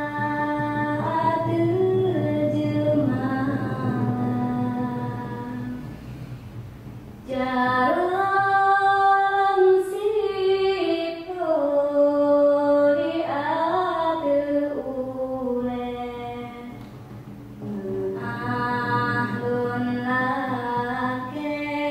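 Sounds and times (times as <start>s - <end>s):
low hum: 0.0s - 9.1s.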